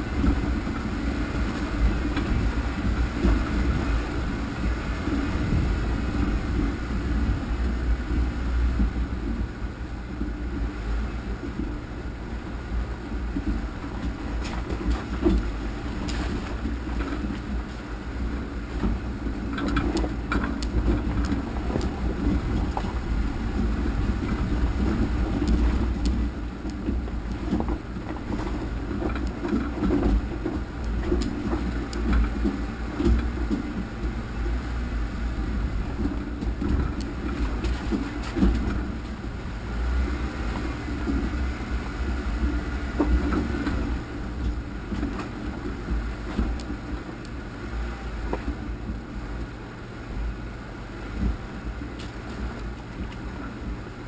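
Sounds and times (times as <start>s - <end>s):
vehicle engine low rumble: 0.0s - 54.0s
rocks knocking and rattling: 0.1s - 9.4s, 13.1s - 34.6s, 35.5s - 39.6s, 40.3s - 47.4s, 51.2s - 53.7s.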